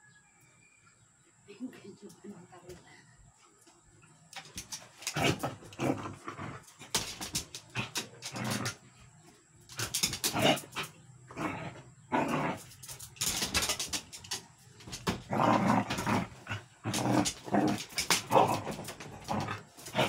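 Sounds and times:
dogs growling: 5.0 - 9.0, 9.7 - 13.6, 15.1 - 20.0.

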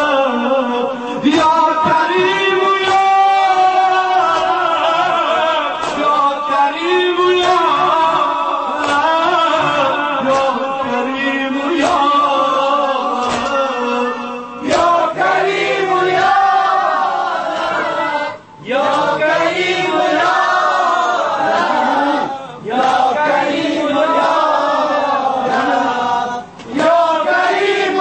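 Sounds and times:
man chanting a lament: 0.0 - 28.0.

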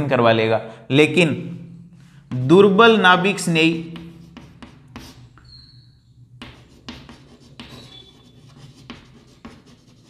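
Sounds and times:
chalk scratching on blackboard: 3.7 - 10.0.

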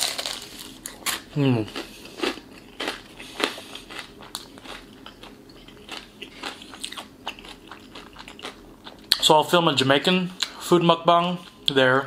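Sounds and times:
chewing crispy fried chicken: 0.0 - 9.3.

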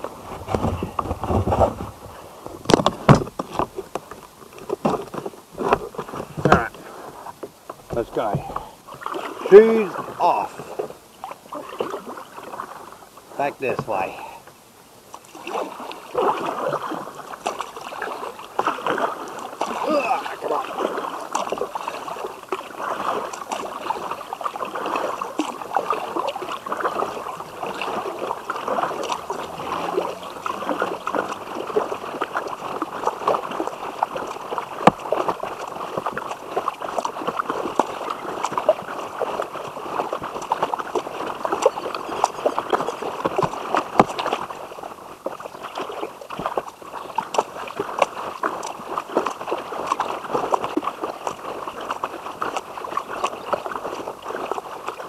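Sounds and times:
water lapping against kayak hull: 0.0 - 55.0
small splashes and drips: 15.0 - 55.0.

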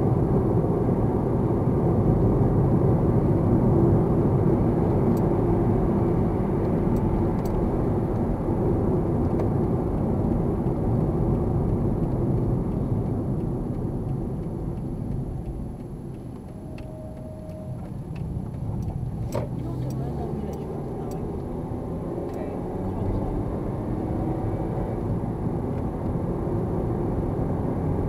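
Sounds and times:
car road and engine noise: 0.0 - 28.0.

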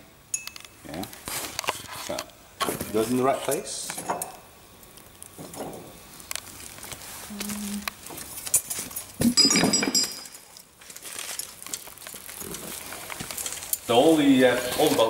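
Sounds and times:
ringing clink: 9.4 - 10.4.

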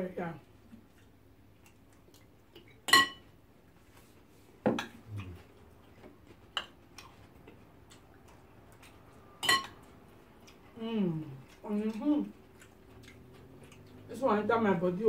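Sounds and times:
cutlery clinking against glass dishes: 2.9 - 3.2, 9.4 - 9.8.

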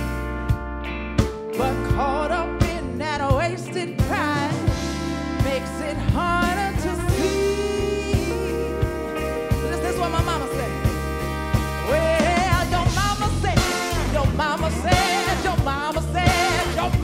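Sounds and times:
funk band playing: 0.0 - 17.0
woman singing: 1.6 - 10.9, 11.9 - 17.0
sustained horn note: 7.0 - 12.6.

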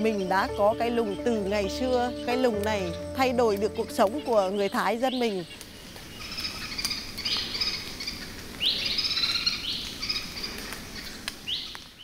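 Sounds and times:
bird singing: 0.0 - 10.3
forest background hiss: 0.0 - 12.0.

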